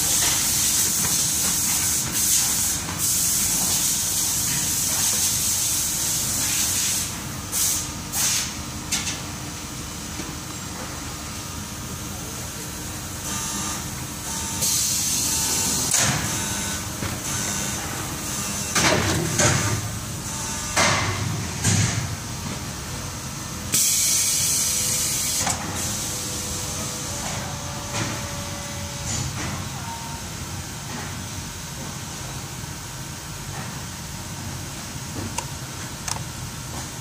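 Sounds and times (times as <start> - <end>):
steady machine noise: 7.2 - 30.8.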